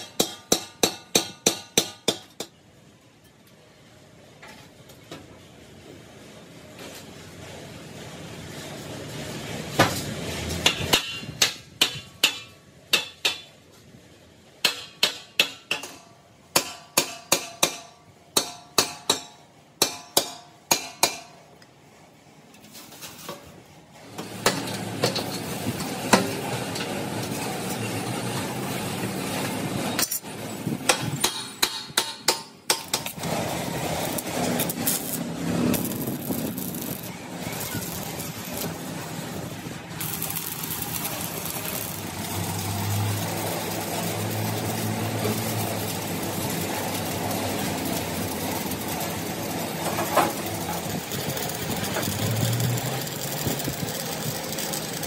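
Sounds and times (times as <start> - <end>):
steady machine noise: 32.9 - 55.0.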